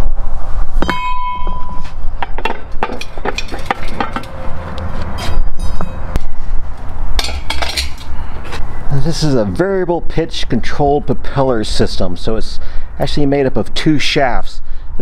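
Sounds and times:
steady low rumble: 0:00.0 - 0:11.3
metal clinks and knocks: 0:00.8 - 0:06.4, 0:07.2 - 0:08.2.

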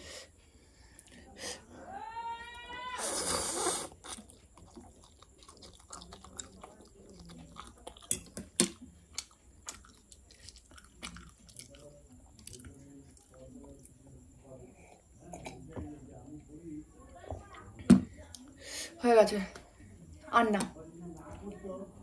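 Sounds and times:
person slurping noodles: 0:03.0 - 0:04.3
chewing with wet mouth clicks: 0:03.9 - 0:14.0.

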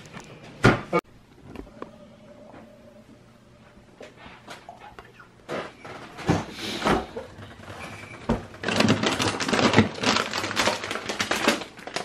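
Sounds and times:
plastic bag crinkling: 0:07.5 - 0:12.0.

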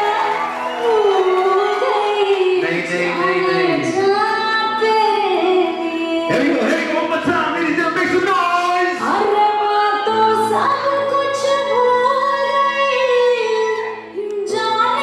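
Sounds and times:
woman singing: 0:00.0 - 0:06.5, 0:09.0 - 0:15.0
light musical accompaniment: 0:00.0 - 0:15.0.

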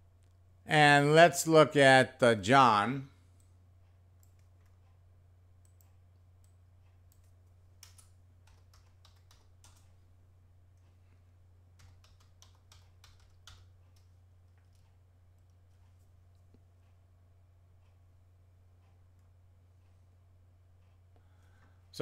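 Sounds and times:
low steady hum: 0:00.0 - 0:22.0
faint keyboard keystrokes: 0:11.8 - 0:16.5.

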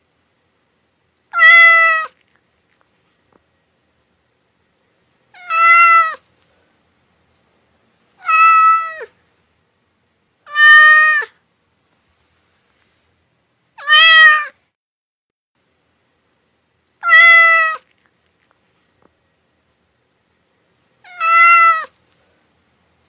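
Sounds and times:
cat meowing: 0:01.3 - 0:02.2, 0:05.4 - 0:06.2, 0:08.2 - 0:09.1, 0:10.5 - 0:11.4, 0:13.8 - 0:14.6, 0:17.0 - 0:17.9, 0:21.0 - 0:22.0.

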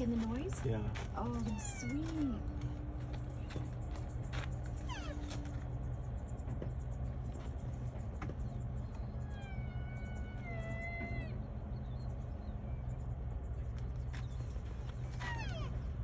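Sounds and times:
low hum: 0:00.0 - 0:16.0
rhino calf whining call: 0:04.8 - 0:05.4, 0:09.1 - 0:11.7, 0:15.0 - 0:16.0.

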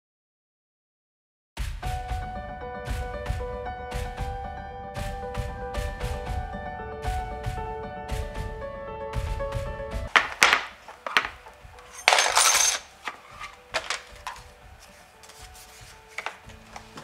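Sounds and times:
soft background music: 0:01.8 - 0:17.0
paper and tools handled: 0:10.1 - 0:17.0
scraping rub: 0:10.7 - 0:16.8.

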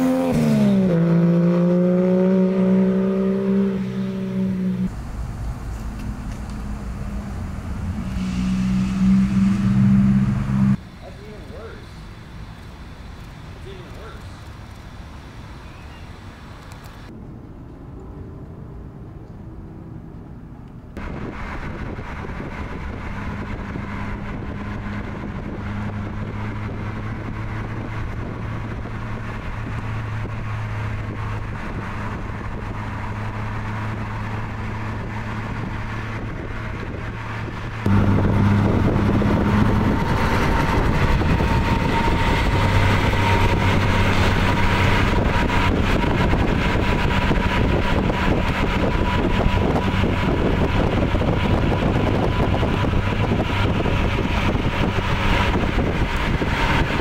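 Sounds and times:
car engine drone: 0:00.0 - 0:57.0
tyre and wind noise: 0:19.1 - 0:57.0.

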